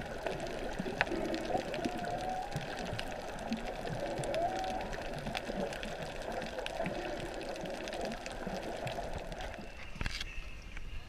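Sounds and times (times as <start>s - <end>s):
muffled underwater rush: 0.0s - 10.5s
faint crackling clicks: 0.0s - 11.0s.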